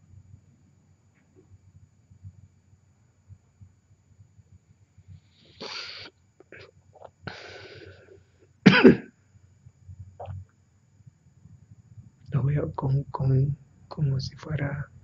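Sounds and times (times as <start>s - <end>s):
faint low rumble: 0.0s - 5.6s, 9.2s - 15.0s
soft hissing: 4.7s - 8.6s
person coughing: 8.6s - 9.1s.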